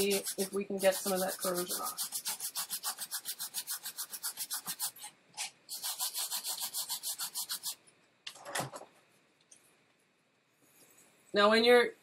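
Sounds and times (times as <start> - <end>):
brush scrubbing circuit board: 0.0 - 5.1, 5.7 - 7.8.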